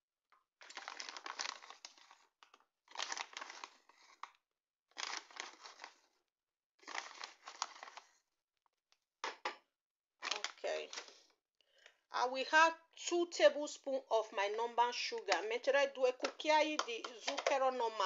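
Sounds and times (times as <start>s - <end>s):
plastic bag crinkling: 0.6s - 2.2s, 2.9s - 4.3s, 5.0s - 6.0s, 6.8s - 8.1s, 10.2s - 11.1s, 14.6s - 18.0s.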